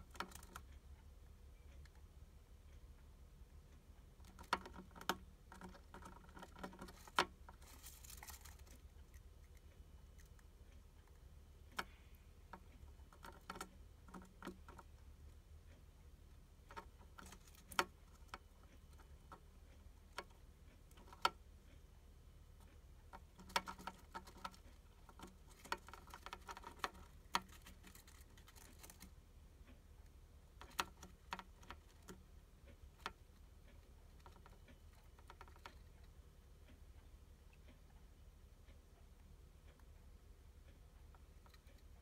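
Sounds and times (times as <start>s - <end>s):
hamster crunching insect: 0.0s - 0.8s, 4.0s - 21.8s, 22.6s - 36.2s, 41.0s - 42.0s.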